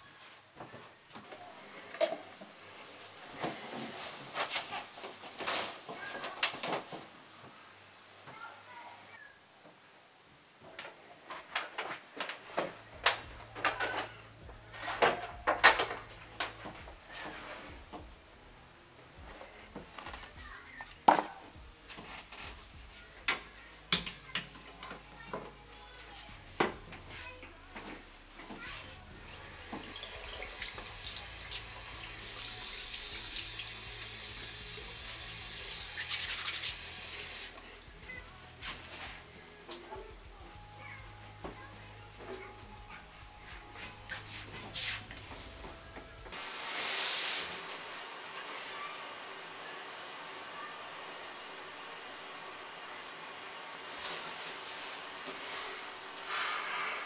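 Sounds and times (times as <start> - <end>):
low steady hum: 12.7 - 36.0
tap water running into sink: 29.8 - 37.4.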